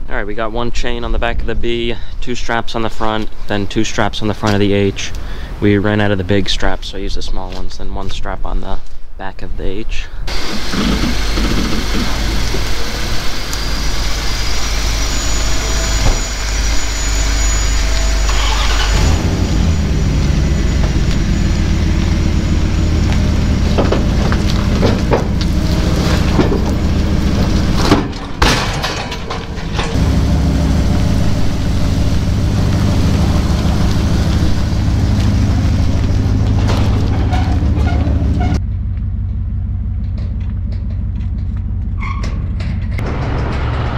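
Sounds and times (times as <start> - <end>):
truck engine idling: 10.3 - 43.9.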